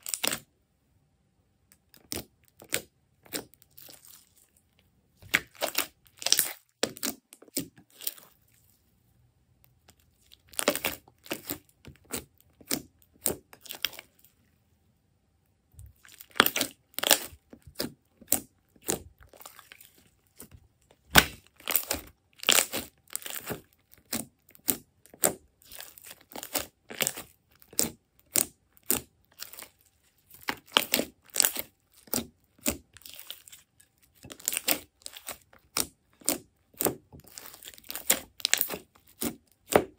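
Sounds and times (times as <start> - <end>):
slime crackling and popping: 5.2 - 8.2, 10.3 - 14.1, 15.9 - 20.0, 21.0 - 39.9.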